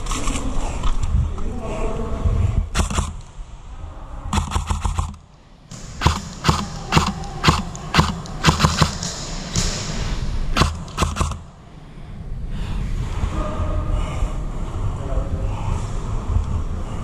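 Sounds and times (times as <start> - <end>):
airsoft guns firing: 2.7 - 3.2, 4.3 - 11.6.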